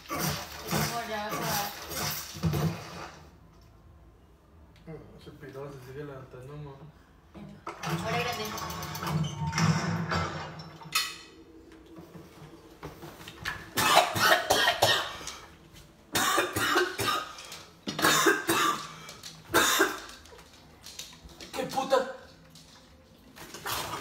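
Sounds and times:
man coughing: 13.8 - 15.2, 16.1 - 18.9, 19.5 - 20.1.

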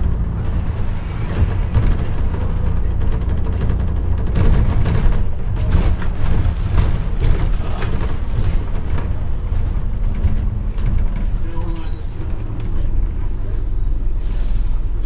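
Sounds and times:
knocks and rattles: 0.0 - 11.5
bus engine and road rumble: 0.0 - 15.0.

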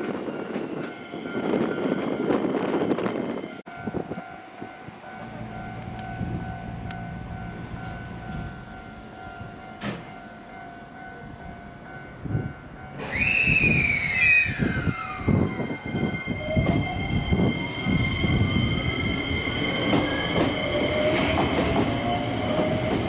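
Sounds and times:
electric train humming: 0.0 - 23.0
train motor whine: 13.0 - 23.0.

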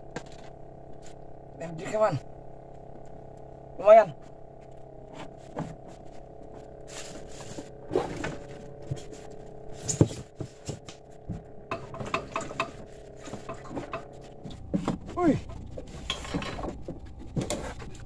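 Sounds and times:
knocks and clatter in wooden boat: 5.1 - 18.0.

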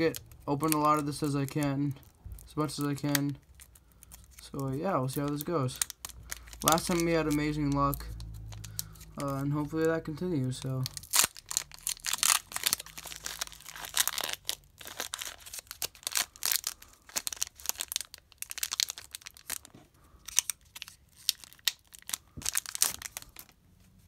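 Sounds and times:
foil wrapper crinkling and tearing: 0.0 - 23.6.

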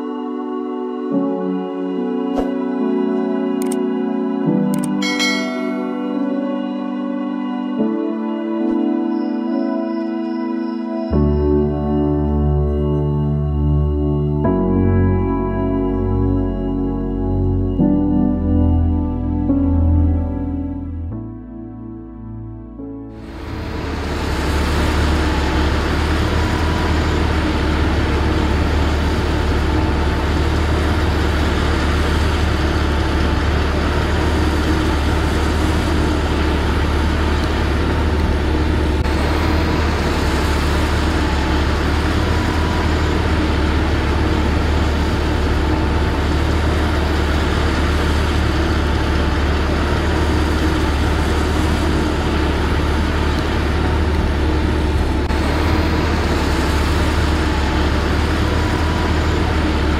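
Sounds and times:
drilling rig engine humming: 23.1 - 59.9.

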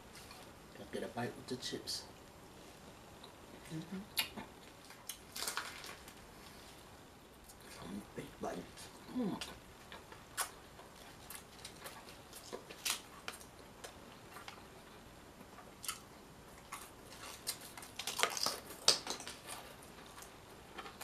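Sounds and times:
chewing with crunches: 8.8 - 21.0.

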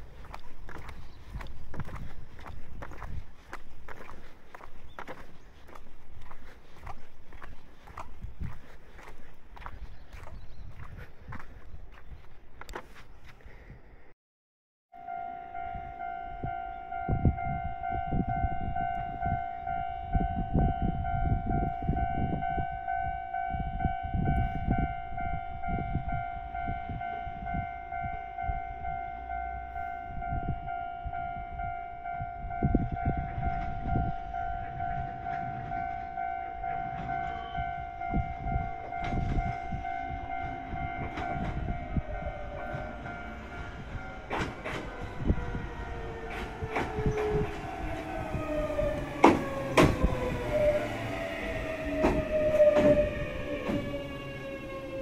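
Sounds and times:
level crossing alarm: 14.9 - 55.0
gusty low rumble: 23.6 - 55.0
train motors whining: 38.8 - 55.0.

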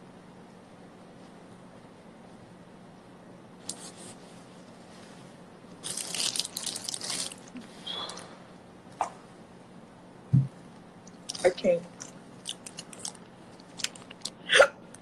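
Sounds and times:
faint steady hum: 0.0 - 15.0
plastic bag crinkling: 5.8 - 8.2, 11.2 - 14.4.

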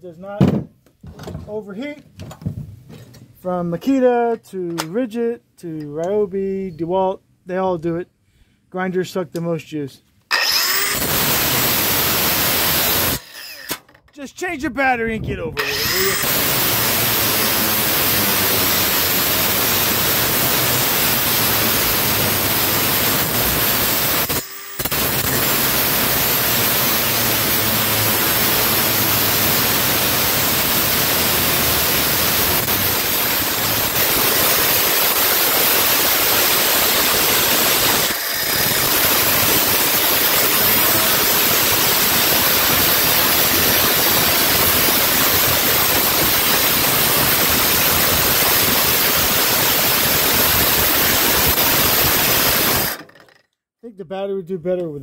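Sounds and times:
angle grinder cutting metal: 10.3 - 13.8, 15.6 - 53.4.

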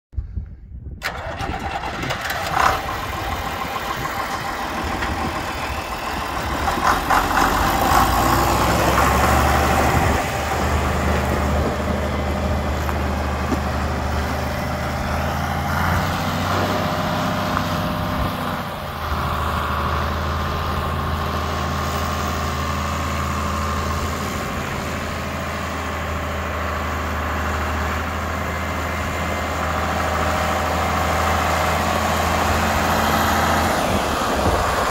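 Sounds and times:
tractor engine running: 1.0 - 34.9.

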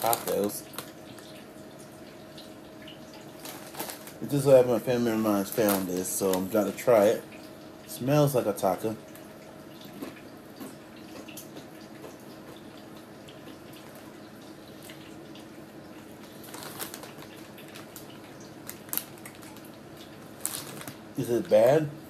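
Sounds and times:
chips crunching while chewed: 3.4 - 4.3, 16.3 - 21.0.

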